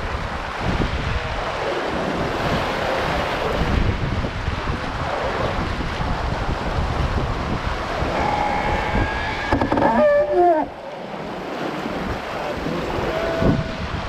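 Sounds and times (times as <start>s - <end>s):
water rushing along hull: 0.0s - 14.0s
wind buffeting microphone: 0.0s - 14.0s
pitched wavering sound: 8.0s - 11.0s.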